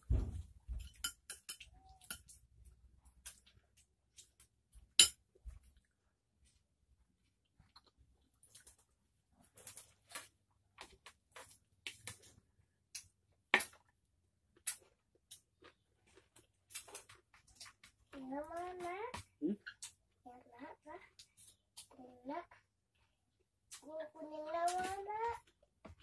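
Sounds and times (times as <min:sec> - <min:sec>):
fingers clicking on a plate: 0:00.9 - 0:02.4
chewing: 0:07.4 - 0:10.0.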